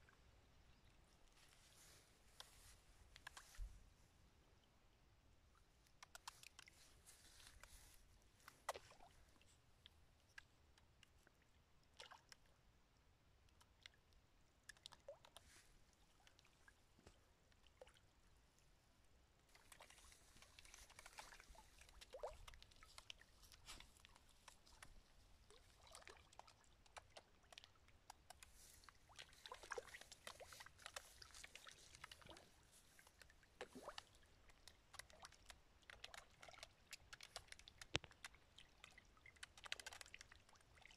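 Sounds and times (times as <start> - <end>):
fish splashing at water surface: 19.5 - 40.9.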